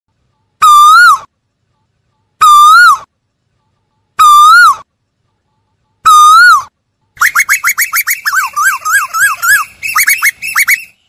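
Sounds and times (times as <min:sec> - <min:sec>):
bird calling whistled notes: 0:06.1 - 0:11.0.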